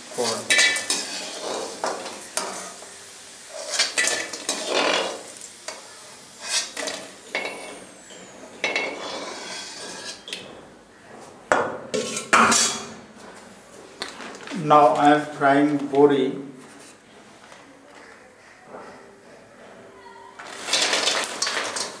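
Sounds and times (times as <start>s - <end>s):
metal skimmer scraping wok: 0.0s - 5.7s, 6.3s - 10.6s, 11.9s - 13.0s, 20.4s - 22.0s.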